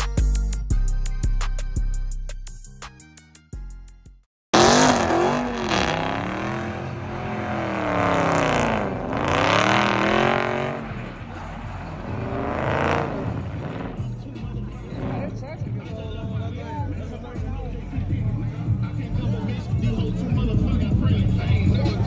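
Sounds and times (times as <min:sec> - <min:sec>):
music: 0:00.0 - 0:04.3, 0:10.7 - 0:22.0
car engine revving: 0:04.5 - 0:16.0.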